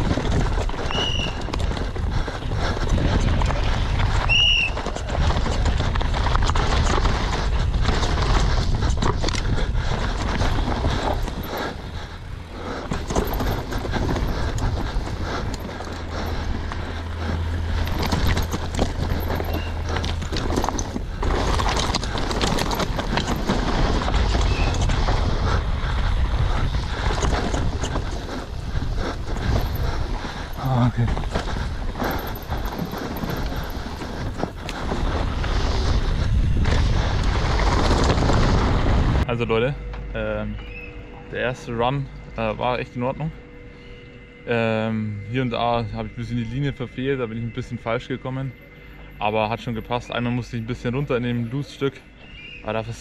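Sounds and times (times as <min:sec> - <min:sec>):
bike rattling over rough ground: 0:00.0 - 0:53.0
tyre noise on loose ground: 0:00.0 - 0:53.0
high squeaks: 0:11.1 - 0:23.5.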